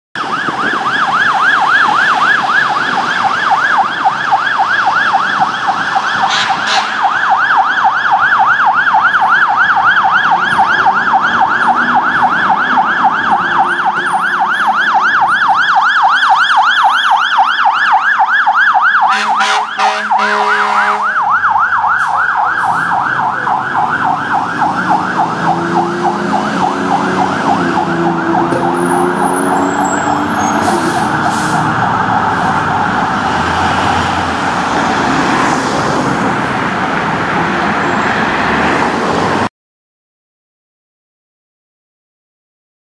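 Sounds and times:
fire engine siren yelping: 0.2s - 39.5s
air horn blast: 6.2s - 7.1s, 19.1s - 21.2s
truck engine accelerating: 21.1s - 39.5s.

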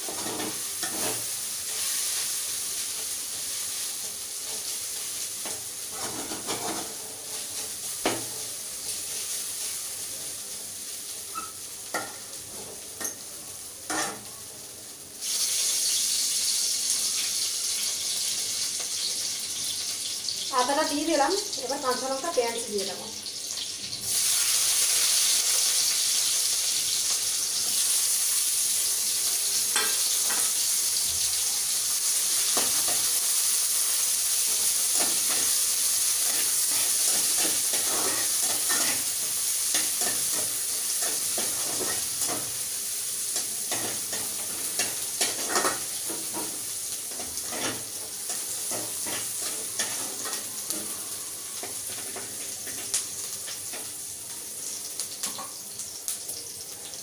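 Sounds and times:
spatula scraping pan: 0.0s - 2.0s, 3.7s - 8.4s, 36.2s - 42.6s, 43.4s - 51.0s
onion sizzling in oil: 0.0s - 57.0s.

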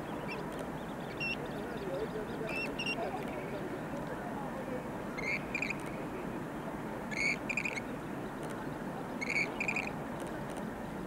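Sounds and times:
grebe calling: 5.2s - 5.8s, 7.1s - 7.8s, 9.2s - 9.9s.

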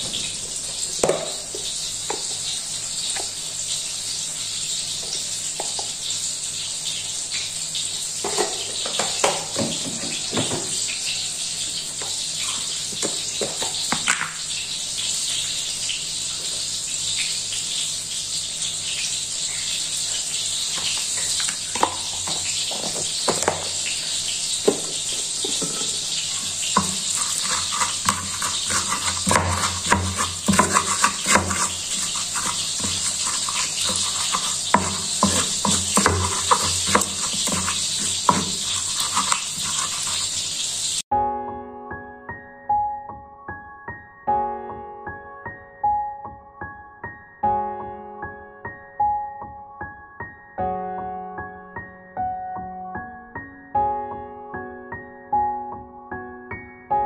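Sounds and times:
stone pestle grinding in mortar: 25.4s - 40.6s.

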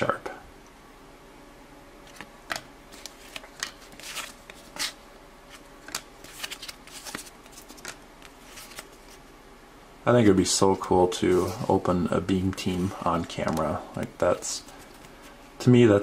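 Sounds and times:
trading cards flipped by hand: 2.0s - 9.2s.

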